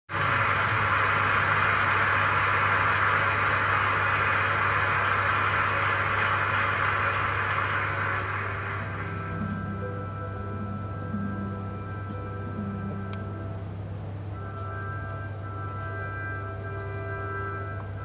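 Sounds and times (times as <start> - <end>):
audience applause: 0.1 - 10.1
low electrical hum: 0.1 - 18.0.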